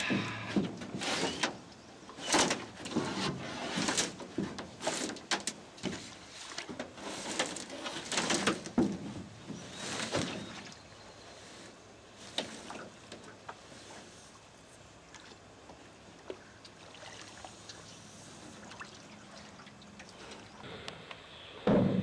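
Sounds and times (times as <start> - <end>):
canoe knocking against wooden dock: 8.3 - 10.4.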